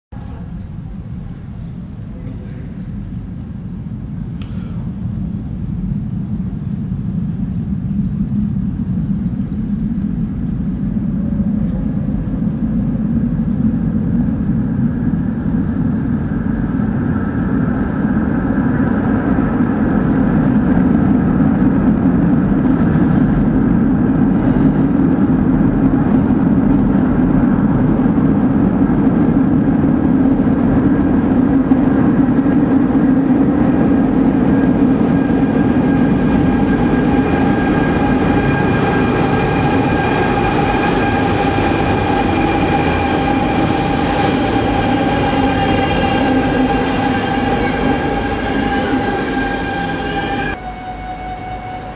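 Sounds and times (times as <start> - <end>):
train rumbling in tunnel: 0.1 - 51.9
thin whining tones: 30.3 - 51.9.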